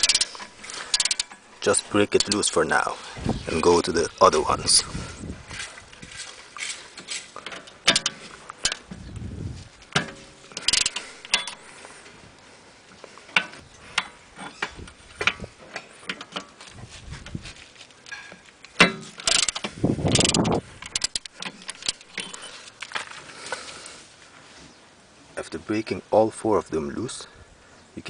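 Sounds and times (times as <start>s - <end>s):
metal tool clinking on hub: 0.0s - 1.4s, 9.9s - 11.6s
ratchet clicking: 0.0s - 1.4s, 10.6s - 11.6s, 19.2s - 22.4s.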